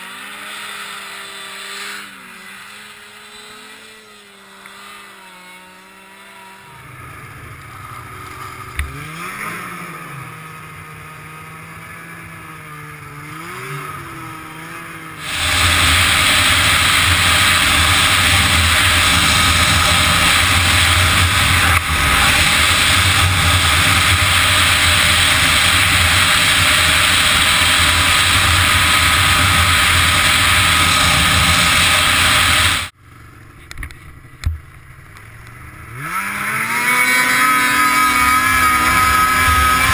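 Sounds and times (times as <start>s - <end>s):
snowmobile engine revving: 0.0s - 33.0s, 35.5s - 39.9s
rushing wind: 15.2s - 32.9s.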